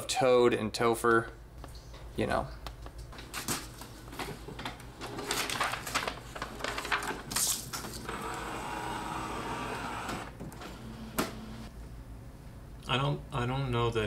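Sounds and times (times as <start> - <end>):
paper rustling: 5.0 - 8.1
scanner humming: 8.1 - 11.7.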